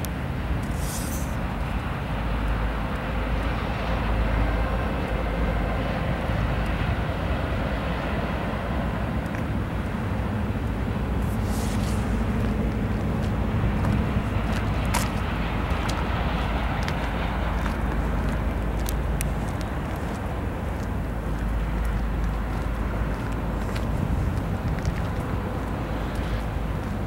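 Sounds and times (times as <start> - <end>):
freight train rumbling past: 0.2 - 27.0.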